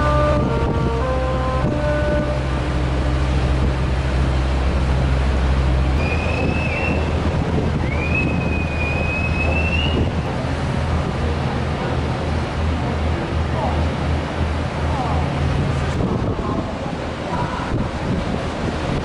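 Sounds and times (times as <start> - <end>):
ship low rumble: 0.0 - 19.0
water noise: 0.0 - 19.0
wind: 0.0 - 19.0
thin whistling tones: 6.0 - 7.2, 7.8 - 10.1.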